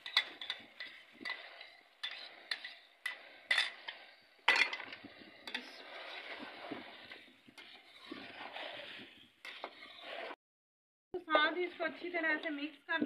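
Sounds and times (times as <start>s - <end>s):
spoon scraping bowl: 0.0s - 10.4s, 11.2s - 12.7s
spoon stirring in pot: 0.0s - 10.4s, 11.2s - 12.9s.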